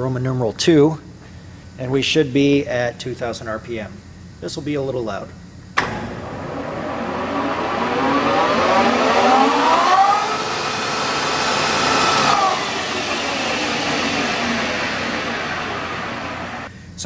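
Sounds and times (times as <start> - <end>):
lathe gear whine: 5.8 - 16.7.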